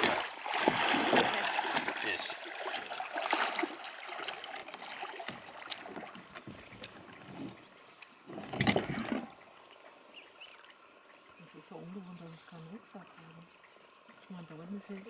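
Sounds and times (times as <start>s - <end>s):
knocks on plastic kayaks: 0.0s - 2.2s
water sloshing: 0.0s - 9.4s
insects droning: 0.0s - 15.0s.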